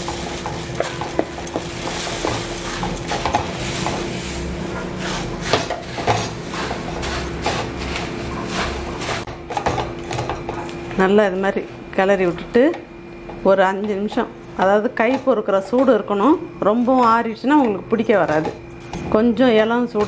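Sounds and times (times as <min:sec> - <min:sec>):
spatula scraping a pan: 0:01.8 - 0:09.3.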